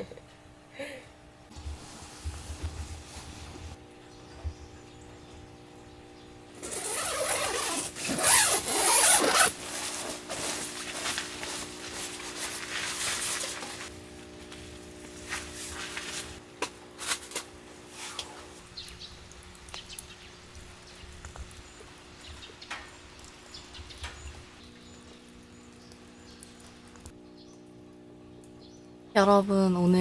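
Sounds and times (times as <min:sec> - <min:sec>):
tent zipper pulled open: 0:06.6 - 0:10.6
tent fabric rustling: 0:06.6 - 0:13.9, 0:15.2 - 0:16.4.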